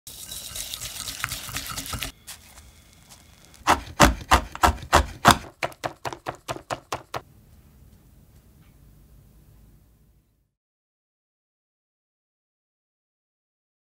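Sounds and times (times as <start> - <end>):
whisk stirring in glass bowl: 0.1 - 2.1
knife chopping on wooden board: 3.7 - 7.2.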